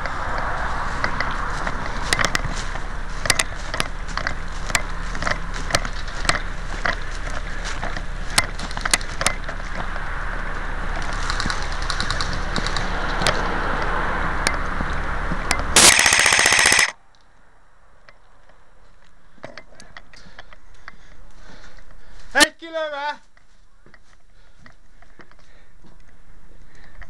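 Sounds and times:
airsoft single shots: 15.8 - 16.9
automatic airsoft gunfire: 15.8 - 17.0.

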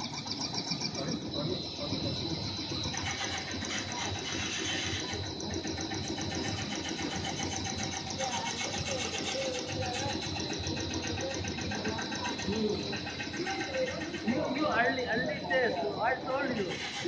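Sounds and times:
factory machinery running: 0.0 - 17.0
fast even ticking: 0.0 - 17.0
steady high whine: 0.0 - 17.0.

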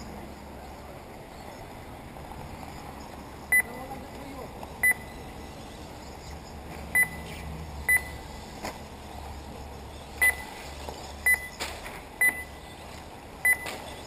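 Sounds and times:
short high electronic beeps: 13.5 - 13.8.

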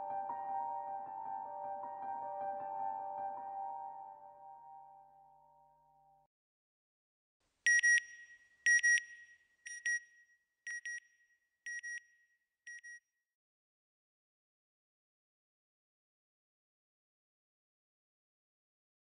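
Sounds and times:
soft music: 0.0 - 6.3.

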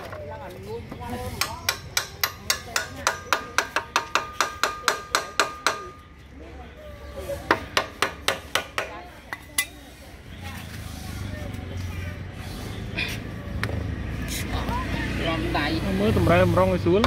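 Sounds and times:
hammer striking metal axle: 1.4 - 6.0.

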